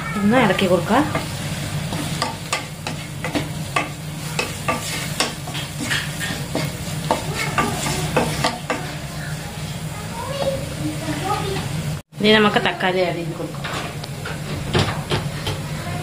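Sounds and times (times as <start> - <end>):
food sizzling in oil: 0.0 - 14.5
wooden spatula scraping a pan: 0.6 - 9.1.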